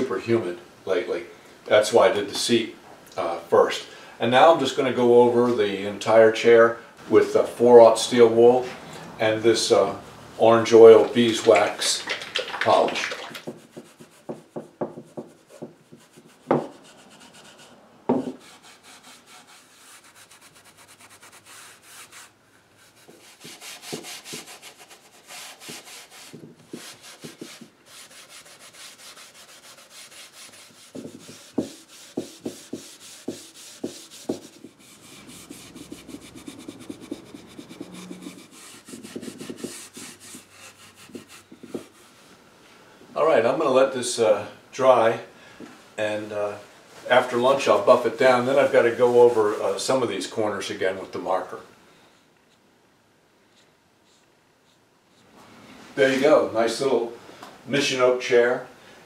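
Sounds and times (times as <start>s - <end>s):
steel wool rubbing on wood: 13.4s - 42.3s.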